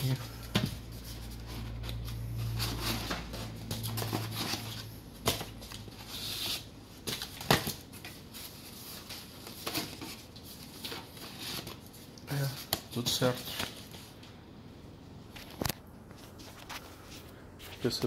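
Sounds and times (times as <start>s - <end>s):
cardboard rustling and scraping: 0.0s - 14.2s
low steady hum: 0.0s - 18.0s.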